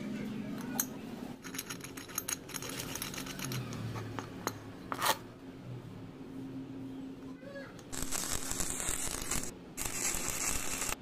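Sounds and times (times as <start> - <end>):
small metal parts clinking: 0.8 - 4.6.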